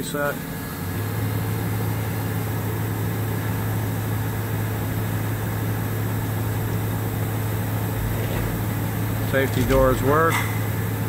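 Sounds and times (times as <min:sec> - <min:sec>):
low electric hum: 0:00.6 - 0:11.0
hydraulic unit whirring: 0:05.2 - 0:11.0.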